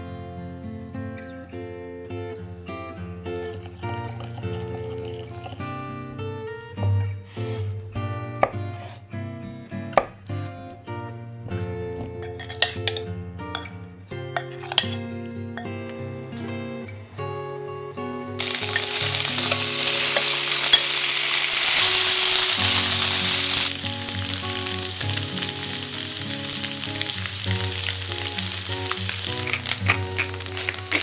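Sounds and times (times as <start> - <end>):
food sizzling in oil: 3.4 - 5.6, 18.4 - 31.0
metal spoon turning food in pan: 14.4 - 15.0, 18.4 - 31.0.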